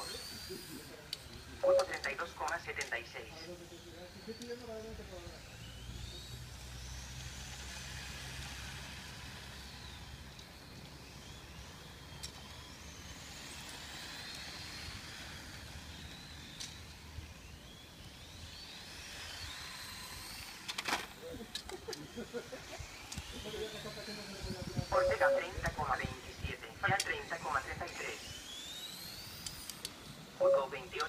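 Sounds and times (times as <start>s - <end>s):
electric motors whining: 0.0s - 31.0s.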